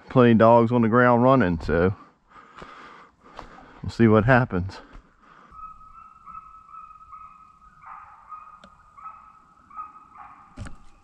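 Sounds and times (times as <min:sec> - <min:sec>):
distant hounds baying: 0:05.1 - 0:11.0.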